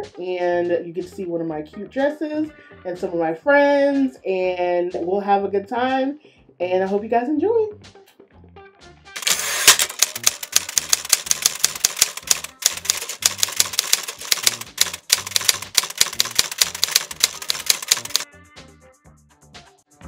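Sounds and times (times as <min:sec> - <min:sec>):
typewriter key clicks: 0:09.2 - 0:18.2
background music with bass line: 0:18.2 - 0:20.0.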